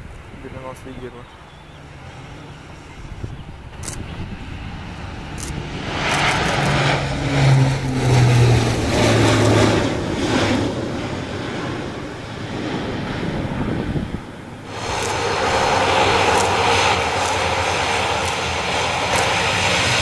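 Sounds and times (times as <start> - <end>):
propeller aircraft drone: 0.0 - 20.0.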